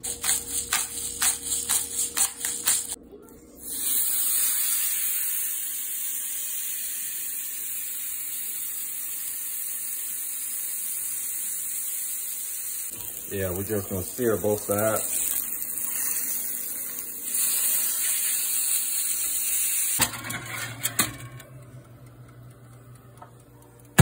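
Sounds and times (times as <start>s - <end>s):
steak sizzling in a skillet: 3.6s - 20.0s.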